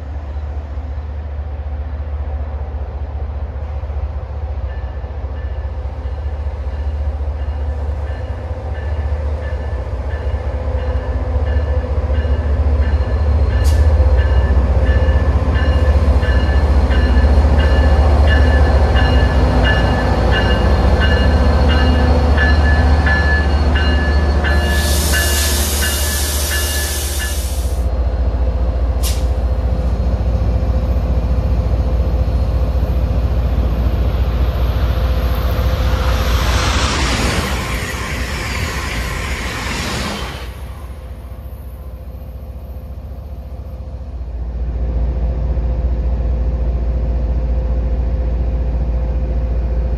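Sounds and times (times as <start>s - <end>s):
diesel locomotive engine rumble: 0.0s - 49.9s
air brake hiss: 24.7s - 27.9s, 29.0s - 29.4s.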